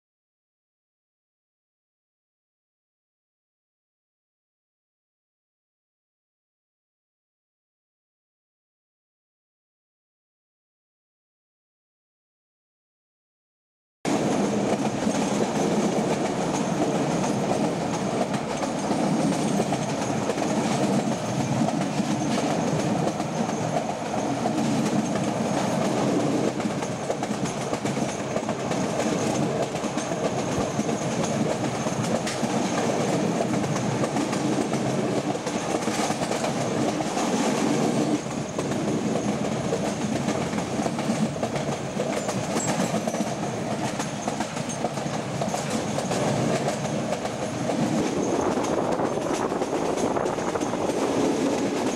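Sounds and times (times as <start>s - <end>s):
train wheels clattering on track: 14.1s - 51.9s.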